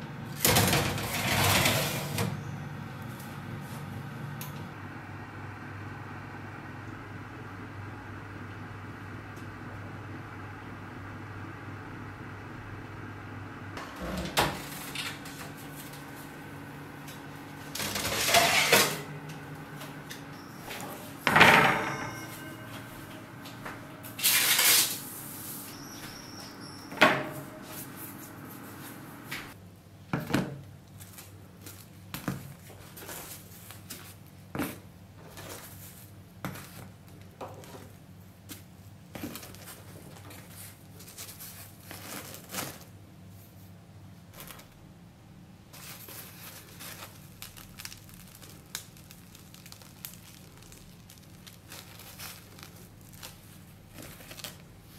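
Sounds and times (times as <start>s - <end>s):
steady low hum: 0.0s - 29.8s
pans clattering and scraping: 17.8s - 19.1s.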